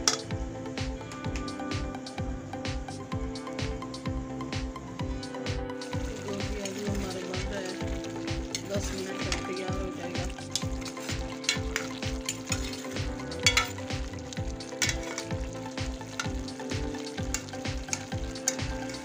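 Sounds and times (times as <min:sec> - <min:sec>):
food sizzling: 0:00.0 - 0:19.0
spoon clinking against pan: 0:13.4 - 0:13.8, 0:14.8 - 0:15.3.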